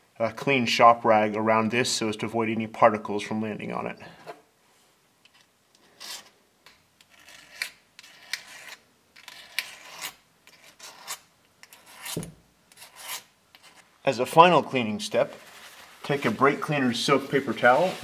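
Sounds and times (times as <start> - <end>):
razor blade scraping: 7.0 - 13.9.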